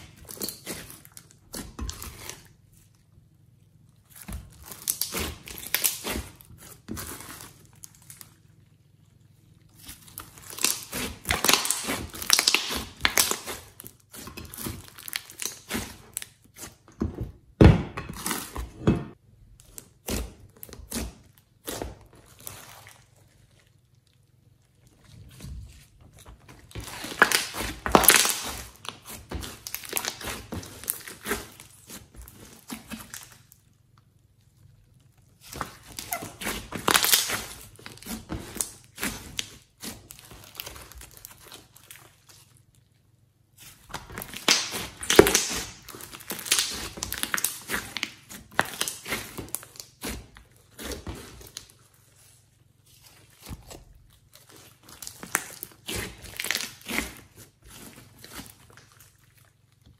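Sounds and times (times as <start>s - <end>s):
slime crackling and popping: 3.9s - 16.9s, 19.6s - 59.9s.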